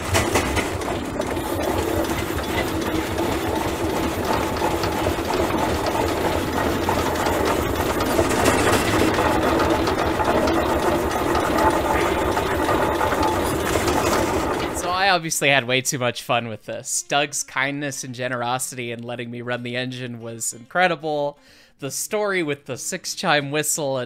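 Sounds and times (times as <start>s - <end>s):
steam engine running: 0.0s - 15.3s.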